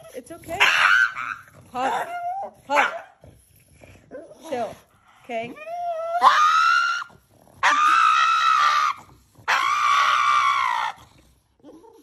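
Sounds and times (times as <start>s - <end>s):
dog screaming: 0.5s - 1.5s, 6.0s - 11.0s.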